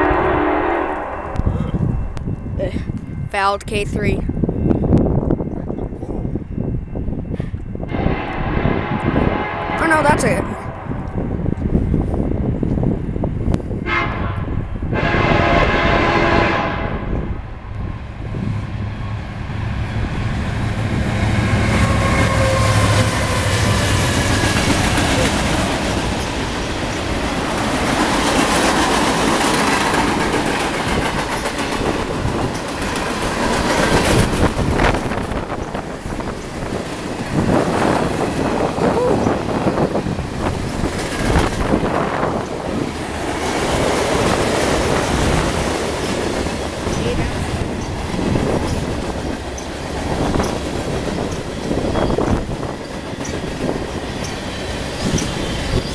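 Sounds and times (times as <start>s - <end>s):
diesel locomotive droning: 0.0s - 55.9s
clickety-clack over rail joints: 18.2s - 55.9s
wheel squeals: 51.2s - 55.9s.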